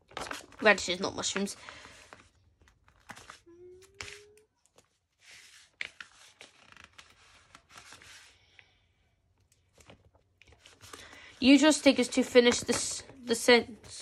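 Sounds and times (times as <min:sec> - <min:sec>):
paper sticker sheets rustling: 0:00.0 - 0:08.4, 0:09.6 - 0:14.0.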